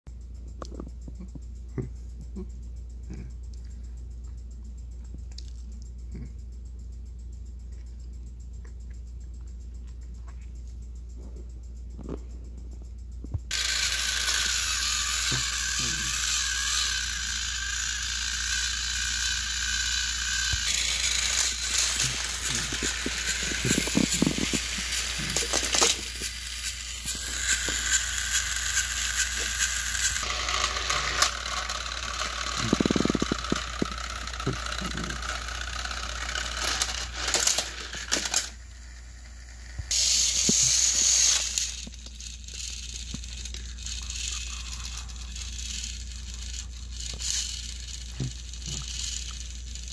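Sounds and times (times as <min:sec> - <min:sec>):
toy train motor whirring: 0:13.5 - 0:49.9.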